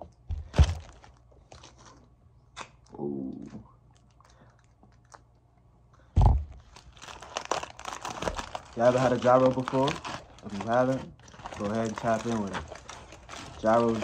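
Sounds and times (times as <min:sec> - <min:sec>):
foil and plastic bottle handling: 0:00.4 - 0:02.0, 0:06.6 - 0:14.0
thump: 0:06.2 - 0:06.6.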